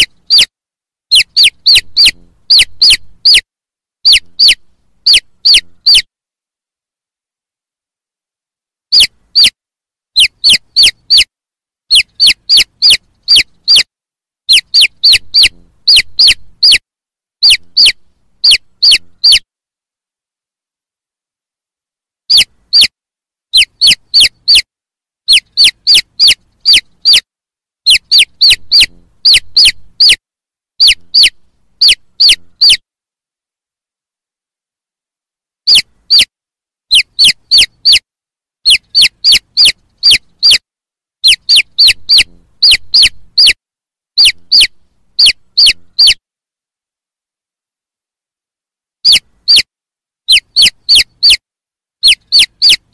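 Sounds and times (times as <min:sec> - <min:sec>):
chicks peeping: 0:00.0 - 0:00.5, 0:01.1 - 0:03.4, 0:04.1 - 0:06.1, 0:08.9 - 0:09.6, 0:10.2 - 0:11.3, 0:11.9 - 0:13.9, 0:14.5 - 0:16.8, 0:17.4 - 0:19.4, 0:22.3 - 0:22.9, 0:23.5 - 0:24.7, 0:25.3 - 0:27.2, 0:27.9 - 0:30.2, 0:30.8 - 0:32.8, 0:35.7 - 0:36.3, 0:36.9 - 0:38.0, 0:38.7 - 0:40.6, 0:41.2 - 0:43.6, 0:44.2 - 0:46.2, 0:49.0 - 0:49.7, 0:50.3 - 0:51.4, 0:52.0 - 0:52.9.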